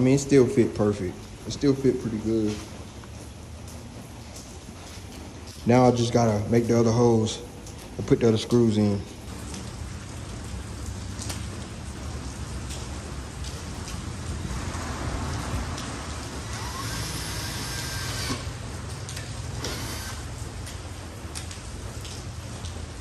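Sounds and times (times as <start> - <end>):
cordless drill grinding: 16.4 - 18.6, 19.5 - 20.4.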